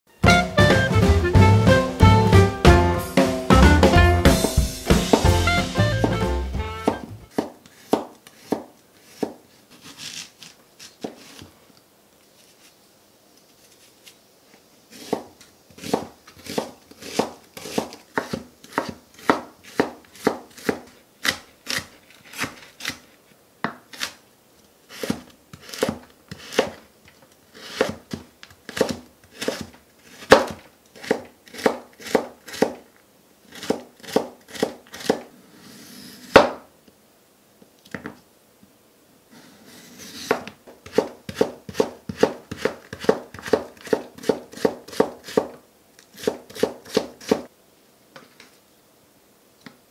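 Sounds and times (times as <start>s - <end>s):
knife chopping on wooden board: 4.3s - 9.4s, 15.0s - 21.8s, 28.7s - 32.8s, 33.6s - 35.2s, 36.3s - 36.6s, 40.2s - 45.6s, 46.2s - 47.4s.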